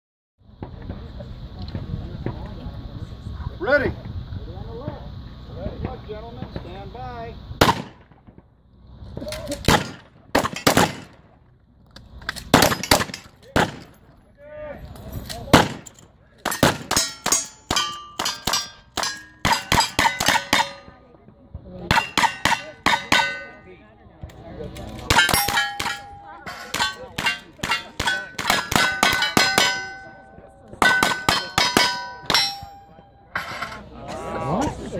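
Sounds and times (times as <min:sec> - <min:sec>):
shotgun shots: 0:07.6 - 0:08.4, 0:09.7 - 0:11.2, 0:12.5 - 0:14.0, 0:15.5 - 0:15.9, 0:16.5 - 0:20.9
steel plates ringing: 0:16.5 - 0:21.0, 0:21.9 - 0:23.8, 0:25.1 - 0:33.9.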